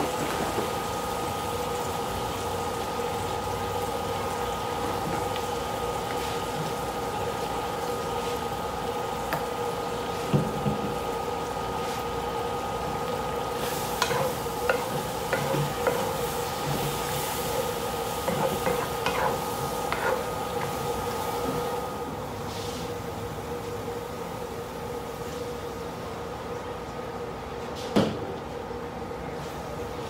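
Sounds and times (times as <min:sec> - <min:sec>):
onions and mushrooms sizzling: 0:00.0 - 0:22.0
induction cooker whine: 0:00.0 - 0:30.0
wooden spatula scraping pan: 0:18.3 - 0:20.3.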